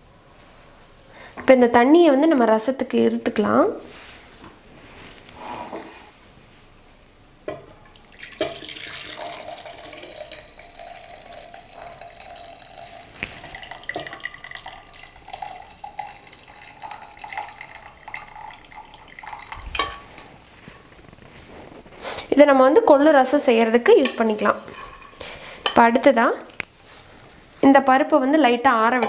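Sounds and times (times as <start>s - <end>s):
water pouring into metal vessel: 7.9s - 19.9s.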